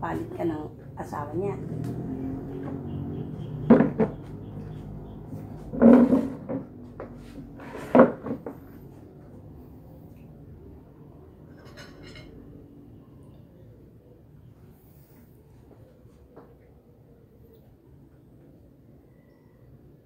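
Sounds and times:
loud wooden knocks: 0:02.7 - 0:04.6, 0:05.6 - 0:08.6
chair being moved: 0:05.4 - 0:09.0.

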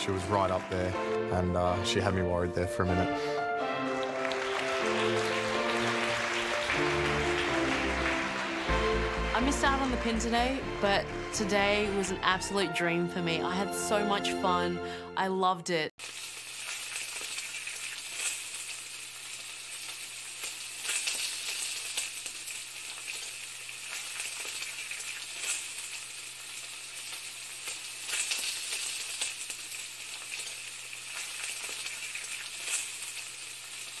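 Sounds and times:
food sizzling in a pan: 0:16.0 - 0:34.0.

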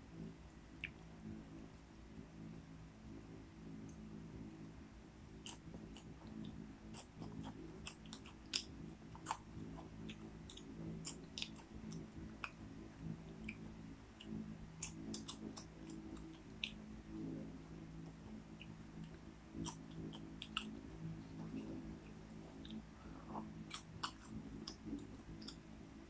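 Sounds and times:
person chewing popcorn: 0:05.4 - 0:12.6, 0:14.2 - 0:16.8, 0:18.6 - 0:20.8, 0:21.4 - 0:25.6.

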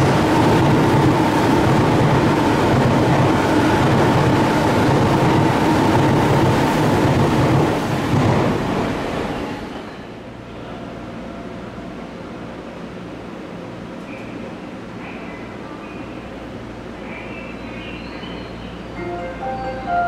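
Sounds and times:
electric train wheels on rails: 0:00.0 - 0:10.3.

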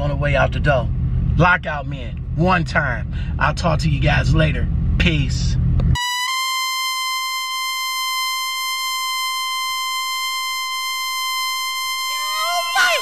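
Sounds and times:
high-pitched electronic beep tone: 0:06.0 - 0:13.0.

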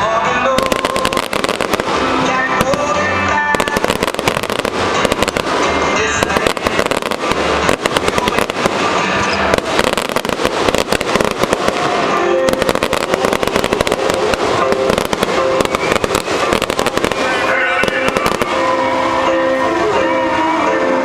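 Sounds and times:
fireworks bangs and crackling: 0:00.0 - 0:21.0.

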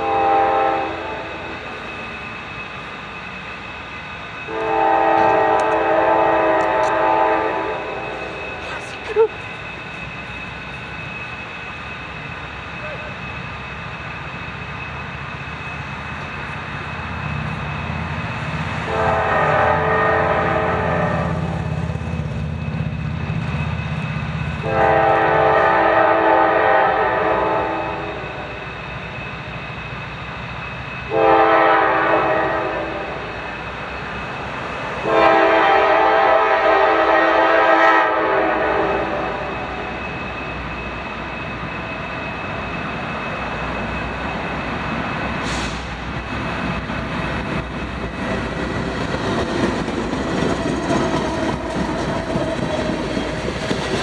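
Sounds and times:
locomotive air horn: 0:00.0 - 0:01.4, 0:04.5 - 0:08.9, 0:18.8 - 0:21.7, 0:24.6 - 0:28.7, 0:31.1 - 0:33.4, 0:35.0 - 0:39.9
locomotive engine rumble: 0:00.0 - 0:54.0.

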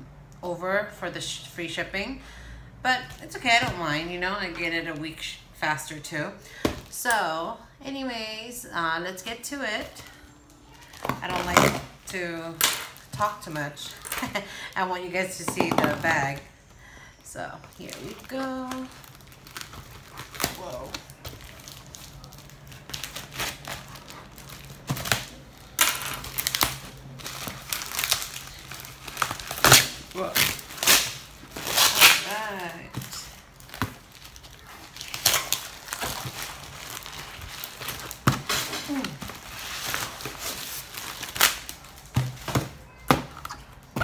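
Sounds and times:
plastic wrapping crinkling: 0:10.3 - 0:15.2, 0:15.9 - 0:43.0
plastic mailer bag rustling: 0:17.2 - 0:43.0
packing tape tearing: 0:17.8 - 0:42.8.

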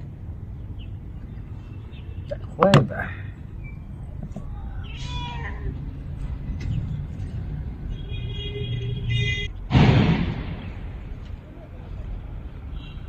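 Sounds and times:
sudden rushing noise: 0:09.7 - 0:11.1.

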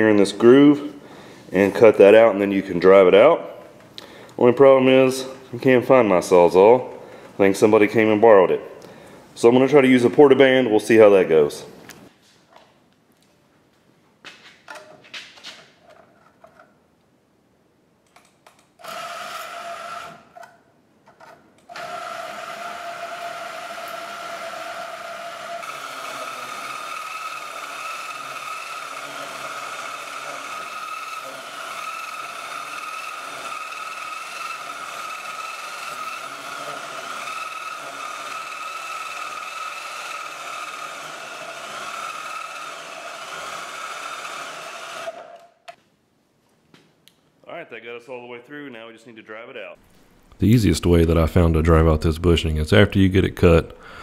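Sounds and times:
band saw cutting metal: 0:21.8 - 0:45.4.

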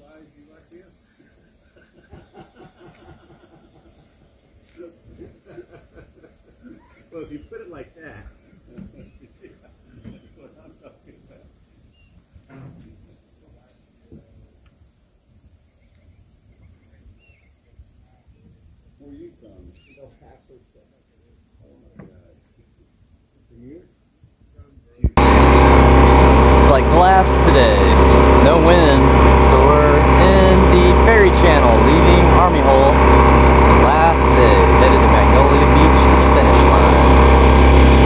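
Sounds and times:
crickets chirring: 0:00.0 - 0:25.0.

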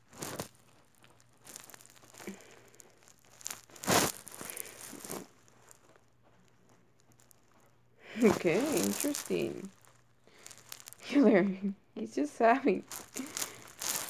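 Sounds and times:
fabric rustling and scuffing: 0:00.0 - 0:02.3, 0:03.1 - 0:06.0, 0:08.2 - 0:11.4, 0:12.9 - 0:14.0.

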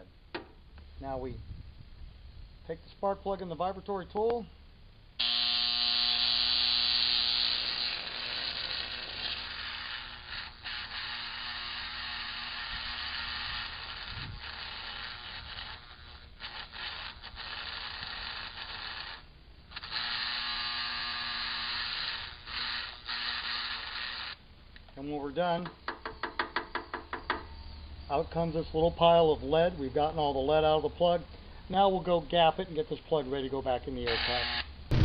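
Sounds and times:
electric vibratory tool buzzing: 0:05.1 - 0:24.5, 0:34.0 - 0:35.0.

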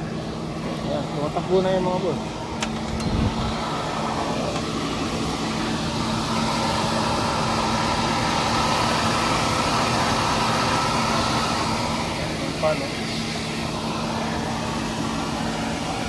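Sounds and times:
cooling fan whirring: 0:00.0 - 0:16.0
low electrical hum: 0:00.0 - 0:16.0.

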